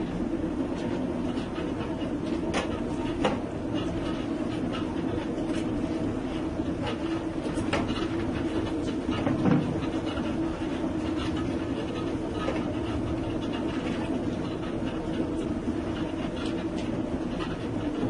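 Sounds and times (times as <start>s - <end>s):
mill machinery humming and rattling: 0.0s - 18.0s
machinery clicking and knocking: 7.5s - 10.4s.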